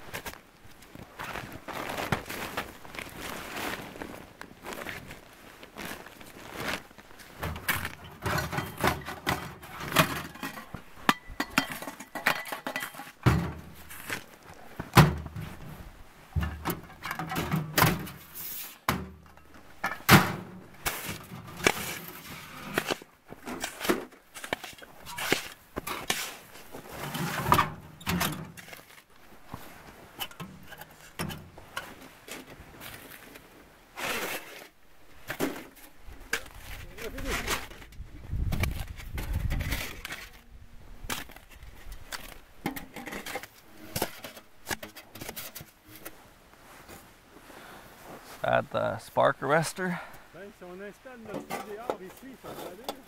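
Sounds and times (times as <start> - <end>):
canvas tent rustling on tarp: 0.0 - 7.4, 24.9 - 27.5, 45.7 - 48.6
metal clunks and knocks: 16.4 - 18.2.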